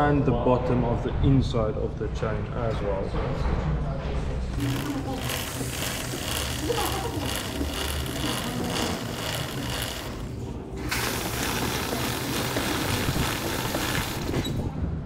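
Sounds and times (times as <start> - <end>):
motorcycle chain running: 4.5 - 14.5
aerosol spray hissing: 7.3 - 14.4.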